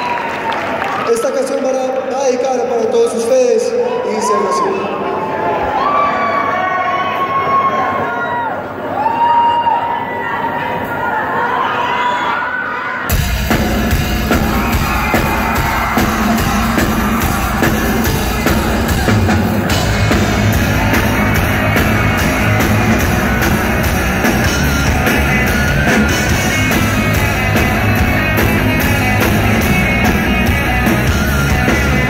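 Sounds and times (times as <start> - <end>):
rock band playing live: 13.1 - 32.0.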